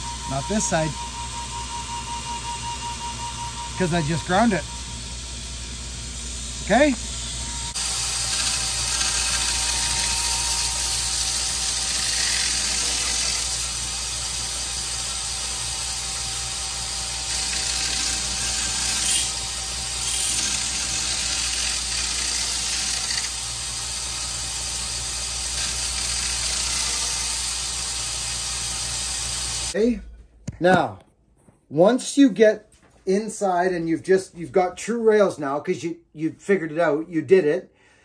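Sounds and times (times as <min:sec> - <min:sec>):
power grinder whining: 0:00.0 - 0:29.8
rasp of metal grinding: 0:06.7 - 0:15.2, 0:17.2 - 0:27.6.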